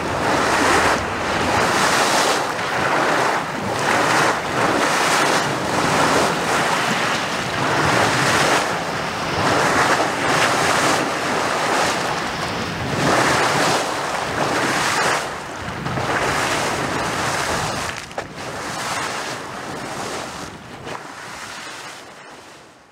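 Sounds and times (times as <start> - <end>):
wind buffeting microphone: 0.0 - 22.7
water surging and splashing: 0.0 - 22.9.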